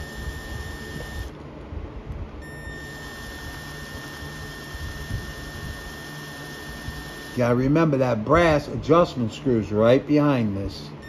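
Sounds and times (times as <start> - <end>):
cordless drill motor whine: 0.0 - 1.4, 2.4 - 8.0.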